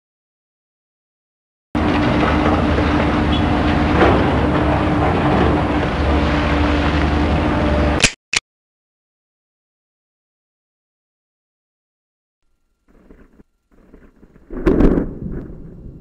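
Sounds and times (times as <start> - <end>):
mechanical rumble with droning hum: 1.8 - 8.0, 12.4 - 16.0.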